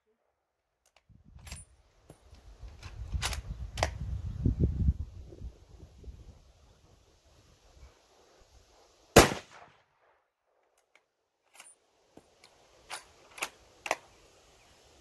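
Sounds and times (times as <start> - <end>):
rifle shot: 9.2 - 10.2
metallic rifle bolt clicks: 12.4 - 14.1.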